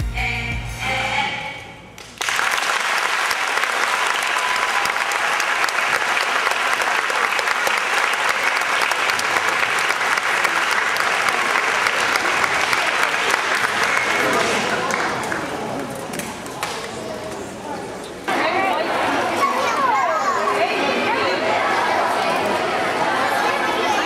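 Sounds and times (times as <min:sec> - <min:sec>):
music: 0:00.0 - 0:01.8
children applauding: 0:02.0 - 0:15.6.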